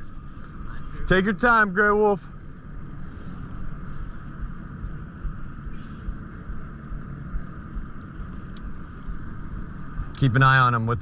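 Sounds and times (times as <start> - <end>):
outboard motor humming: 0.0 - 11.0
faint ticks: 7.8 - 10.3.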